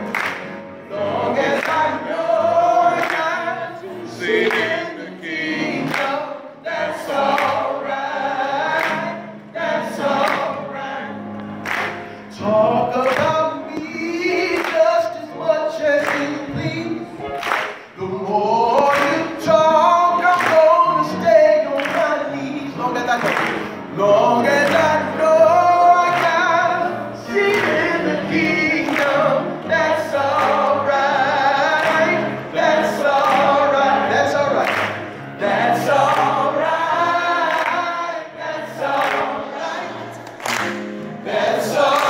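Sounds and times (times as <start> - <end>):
hands clapping in time: 0.0 - 0.6, 1.5 - 1.9, 3.0 - 3.3, 4.4 - 4.8, 5.8 - 6.2, 7.2 - 7.7, 11.4 - 12.2, 13.0 - 14.9, 16.0 - 16.4, 17.3 - 18.0, 18.7 - 19.3, 20.2 - 20.7, 21.7 - 22.1, 23.1 - 23.8, 28.8 - 29.2, 34.6 - 35.2, 40.1 - 41.0
group singing gospel song: 0.0 - 42.0.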